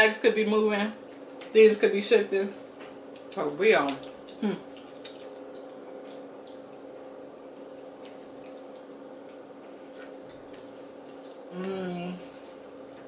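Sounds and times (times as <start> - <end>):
low electrical hum: 0.0 - 13.0
person chewing snack: 4.0 - 6.8, 7.9 - 11.6.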